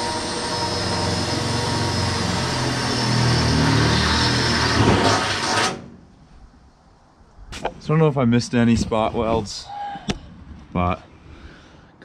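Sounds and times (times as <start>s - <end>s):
grinder on sheet steel: 0.0s - 5.9s.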